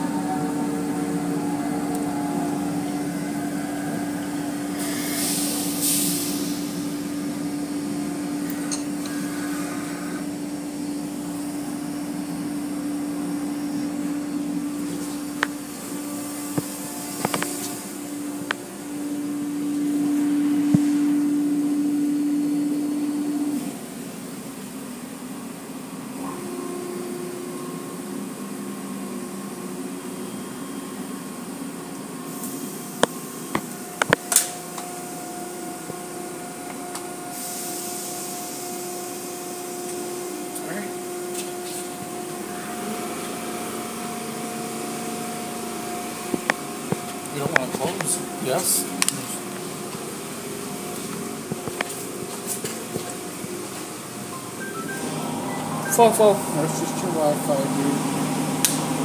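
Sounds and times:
faint high hum: 0.0s - 24.6s
car wash motor hum: 0.0s - 59.0s
water spray hiss: 4.8s - 6.8s.

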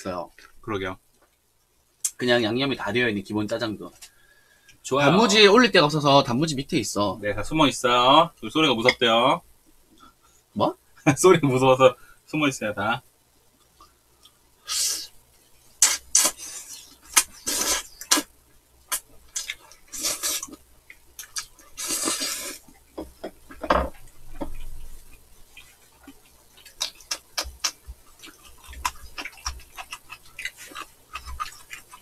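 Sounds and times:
chewing: 18.9s - 32.0s
noodles slurped: 19.4s - 20.6s.

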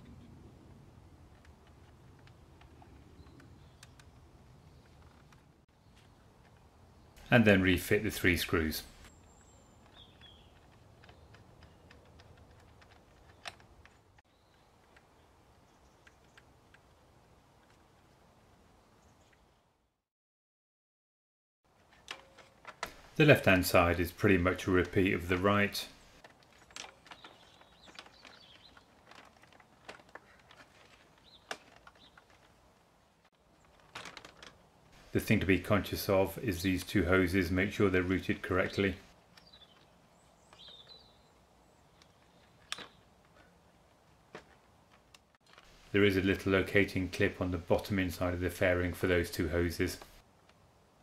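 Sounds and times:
bird chirp: 2.0s - 12.3s, 13.0s - 16.5s, 23.2s - 29.2s, 31.2s - 32.4s, 37.6s - 43.2s
plastic fairing clicks and knocks: 26.2s - 32.6s, 33.6s - 34.6s.

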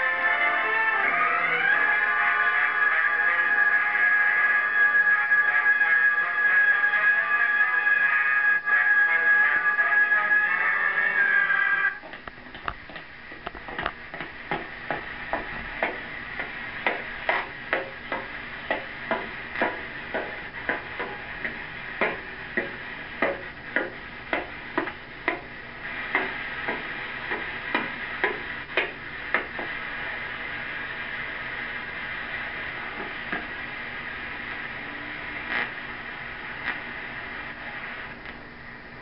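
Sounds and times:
steady background hiss: 0.0s - 39.0s
sharp knocks: 16.8s - 25.5s.

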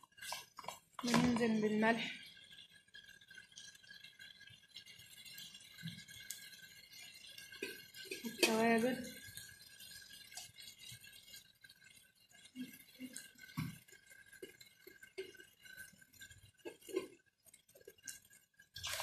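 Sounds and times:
kitchen utensils clinking: 0.1s - 1.8s, 7.1s - 9.3s, 13.0s - 17.2s.

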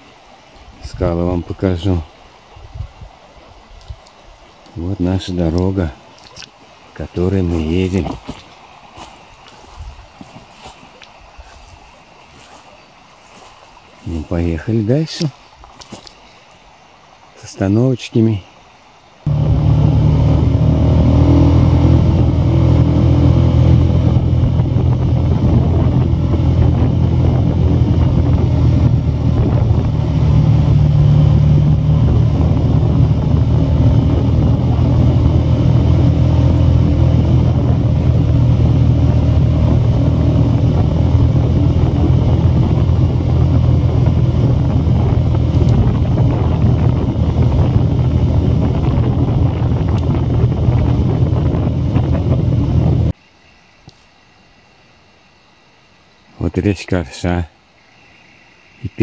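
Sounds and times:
vehicle engine drone: 7.0s - 8.4s, 19.2s - 53.2s
tyre noise on dirt road: 7.3s - 14.4s, 19.3s - 53.2s.

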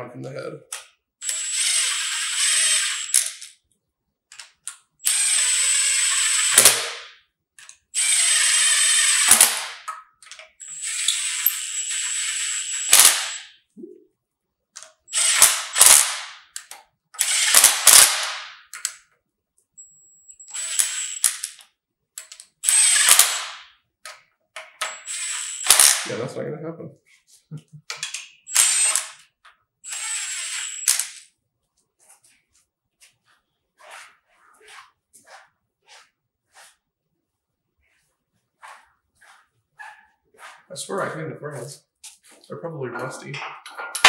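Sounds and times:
impact wrench whining: 1.2s - 3.4s, 5.0s - 7.2s, 8.0s - 9.9s, 10.5s - 13.5s, 15.1s - 18.9s, 20.4s - 21.6s, 22.6s - 23.8s, 24.6s - 26.1s, 28.0s - 31.3s.

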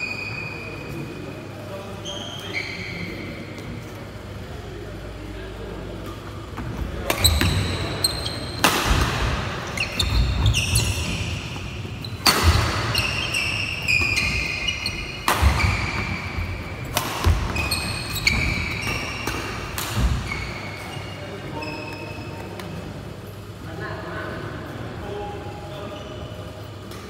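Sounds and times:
racket striking shuttlecock: 7.1s - 20.2s
shoes squeaking on wooden floor: 9.5s - 19.4s.

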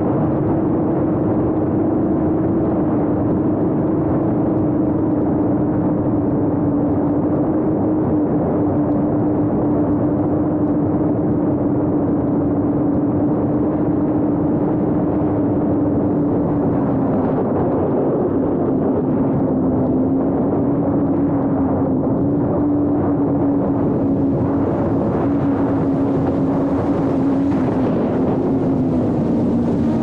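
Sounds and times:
rush of propeller wash: 22.3s - 30.0s.

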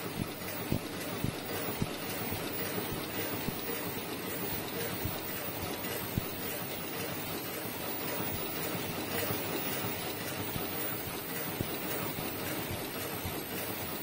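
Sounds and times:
machinery rapid clicking: 0.0s - 14.0s.

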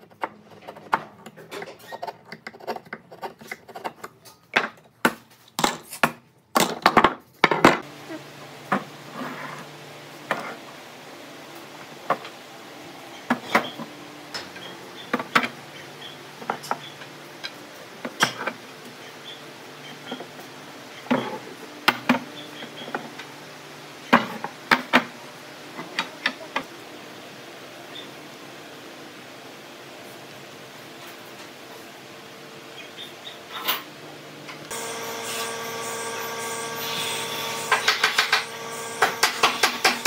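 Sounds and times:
wood and hand tools knocking: 34.7s - 40.0s.

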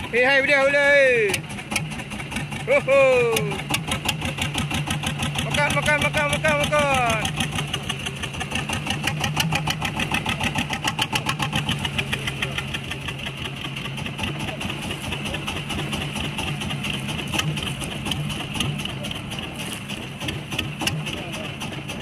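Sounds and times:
boat engine idling: 0.0s - 22.0s.

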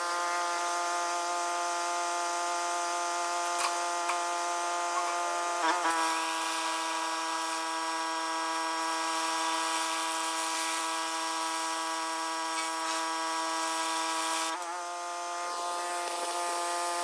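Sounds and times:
pressure washer droning: 0.0s - 17.0s.

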